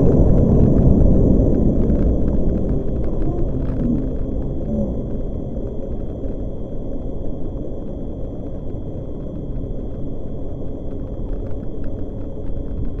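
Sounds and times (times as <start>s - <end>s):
wind and road noise rumble: 0.0s - 13.0s.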